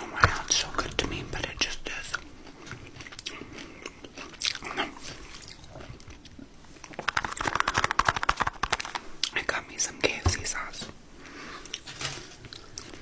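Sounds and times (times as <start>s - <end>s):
person chewing food: 0.0s - 9.4s, 11.2s - 13.0s
crunchy bites: 2.2s - 9.3s.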